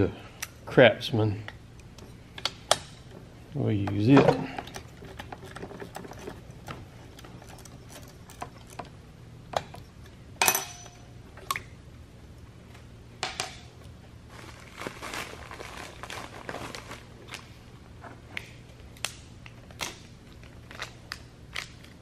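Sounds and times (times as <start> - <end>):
metal tools clinking: 4.0 - 8.9, 10.4 - 11.1.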